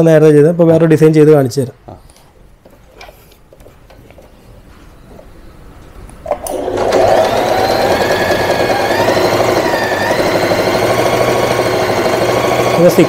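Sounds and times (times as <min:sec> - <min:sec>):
sewing machine running: 0:06.3 - 0:13.0.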